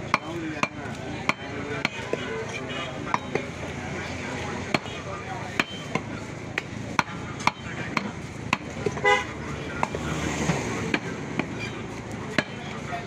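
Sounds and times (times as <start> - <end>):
cleaver chopping on wooden block: 0.1 - 2.2, 5.6 - 9.0
vehicle horn toot: 9.0 - 9.3.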